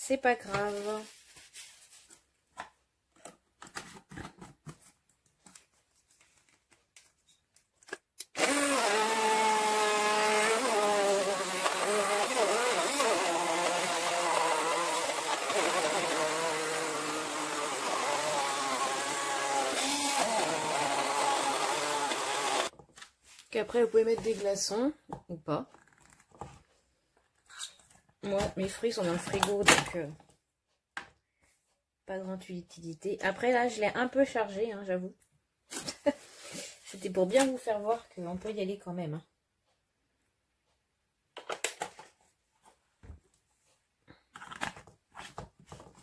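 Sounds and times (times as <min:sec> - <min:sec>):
blender motor running: 0:08.3 - 0:22.7.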